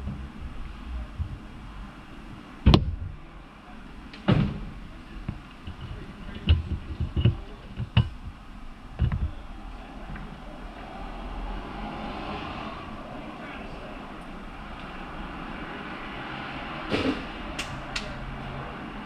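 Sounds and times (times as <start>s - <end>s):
low steady hum: 0.0s - 19.0s
sharp knocks and clacks: 5.3s - 8.4s.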